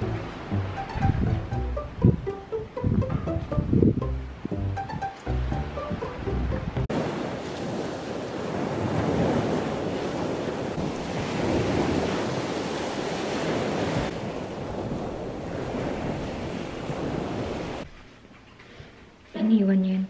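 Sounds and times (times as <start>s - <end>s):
wind buffeting microphone: 0.0s - 5.0s, 5.9s - 17.9s
small waves breaking on beach: 6.9s - 17.9s.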